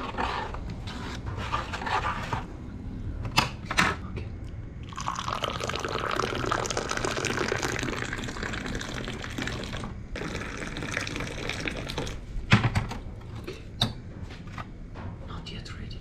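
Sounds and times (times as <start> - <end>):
tea pouring into glasses: 4.8 - 12.2.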